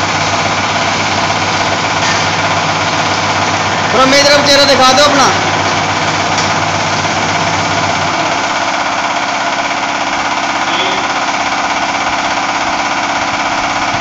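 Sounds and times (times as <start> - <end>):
welding machine buzzing: 0.0 - 14.0.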